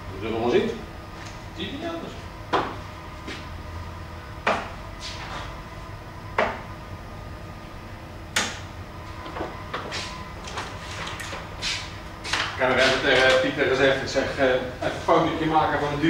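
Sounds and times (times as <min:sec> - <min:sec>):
darts thudding into dartboard: 0:04.4 - 0:04.8, 0:06.4 - 0:06.7, 0:08.3 - 0:08.6.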